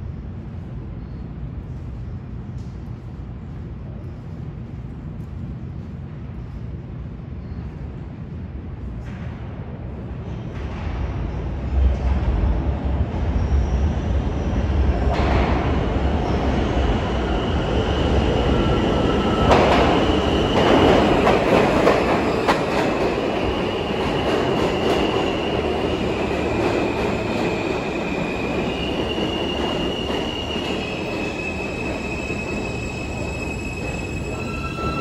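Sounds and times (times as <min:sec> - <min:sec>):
subway train wheels rumbling: 0:00.0 - 0:35.0
high wheel squeal: 0:27.5 - 0:35.0.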